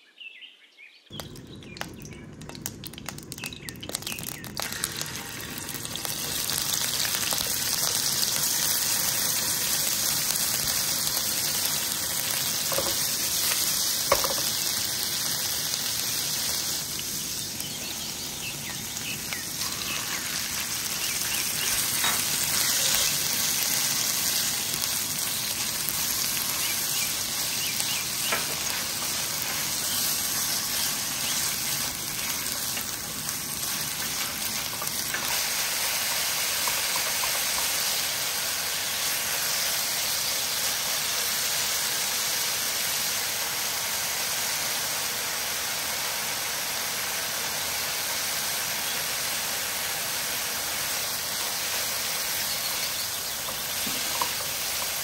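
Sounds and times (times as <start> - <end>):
food sizzling in hot oil: 1.2 - 55.0.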